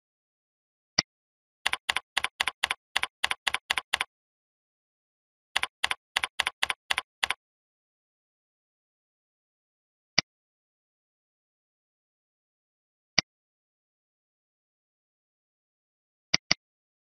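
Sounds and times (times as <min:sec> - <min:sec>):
typing on a computer keyboard: 0:01.7 - 0:04.1, 0:05.6 - 0:07.4.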